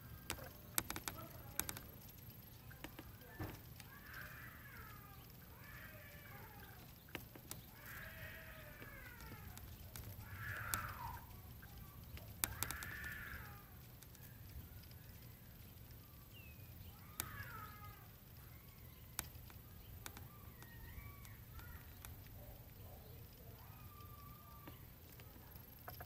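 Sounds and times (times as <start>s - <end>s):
sharp clicks: 0.0s - 26.0s
animal crying: 3.7s - 7.0s, 7.6s - 14.3s, 16.9s - 18.8s, 20.1s - 24.8s.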